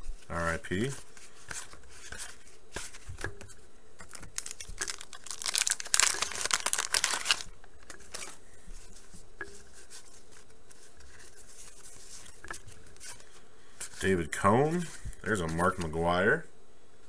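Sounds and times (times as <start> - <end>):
wrapper tearing and crinkling: 4.1 - 7.5
cards tapping and rustling: 4.1 - 8.3.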